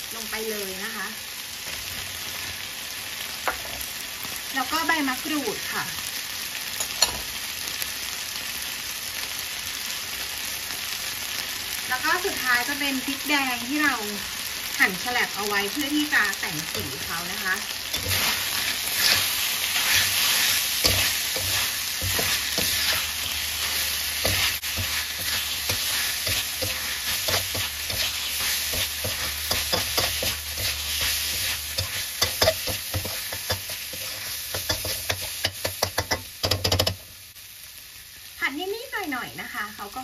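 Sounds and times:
meat sizzling in a wok: 0.0 - 40.0
metal spatula scraping a pan: 17.9 - 36.2.

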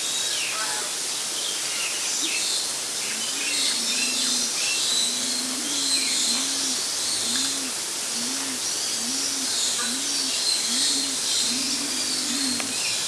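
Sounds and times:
steady hiss: 0.0 - 13.0
small birds chirping: 1.2 - 13.0
low hooting bird call: 3.1 - 13.0.

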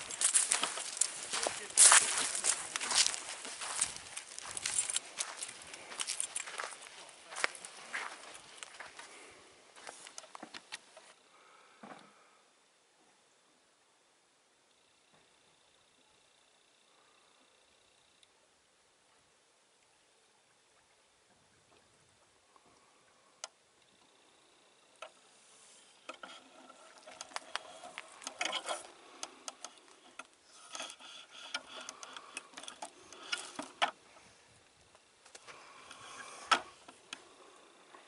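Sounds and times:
footsteps through dry leaves: 0.0 - 8.8.

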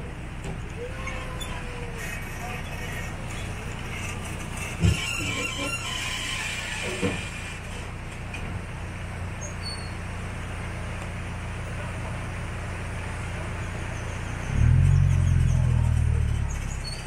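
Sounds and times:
train engine humming and revving: 10.0 - 17.0.

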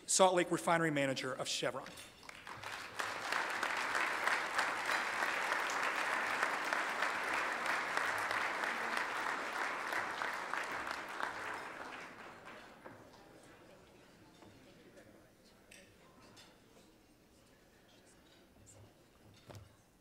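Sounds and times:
audience applauding: 2.2 - 13.1.

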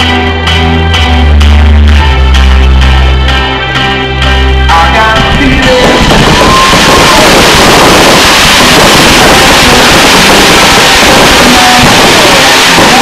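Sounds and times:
fireworks bangs and crackle: 5.3 - 13.0.

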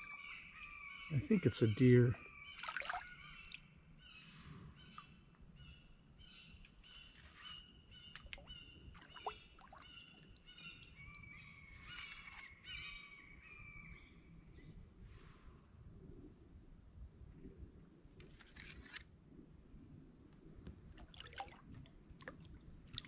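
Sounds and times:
songbirds chirping: 0.0 - 14.9.

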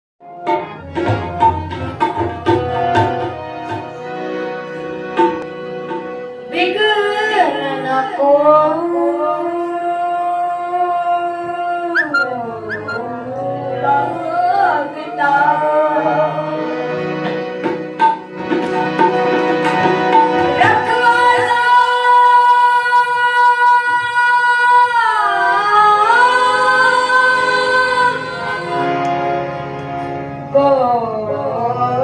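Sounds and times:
boy singing: 6.5 - 16.7, 20.5 - 28.9, 30.6 - 32.0.

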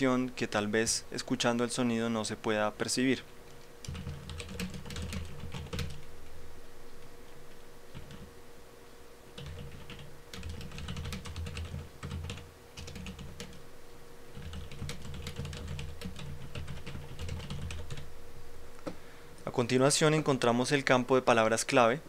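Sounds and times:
faint steady hum: 0.0 - 22.0
typing on a keyboard: 3.8 - 6.0, 7.9 - 8.3, 9.4 - 13.6, 14.4 - 18.0.

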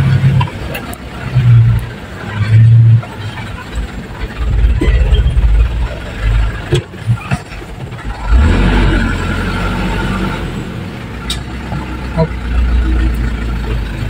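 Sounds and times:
knocks and rattles: 0.0 - 8.4
vehicle engine running: 0.0 - 14.0.

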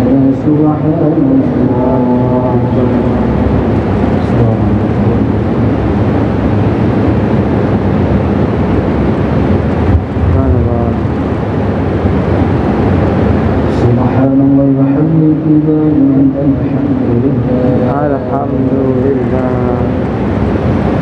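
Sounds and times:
person chanting: 0.0 - 5.5, 13.7 - 20.0
murmur of voices echoing: 0.0 - 7.2, 9.4 - 21.0.

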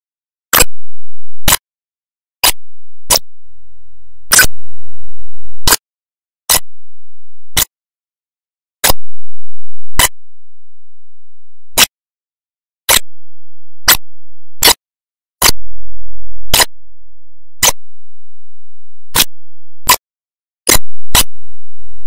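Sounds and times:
sharp clicks: 20.7 - 21.4.

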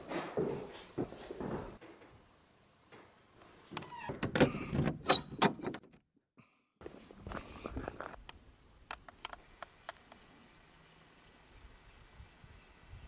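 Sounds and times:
door creaking: 3.7 - 6.0.

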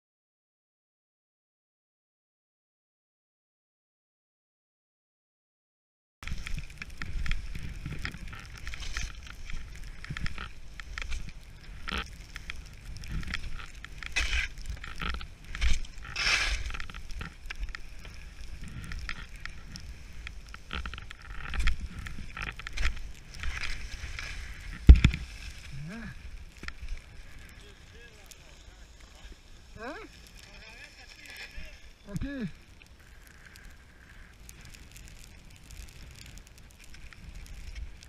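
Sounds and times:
wind rumble on microphone: 6.2 - 28.4
skis scraping over snow: 6.2 - 38.0.

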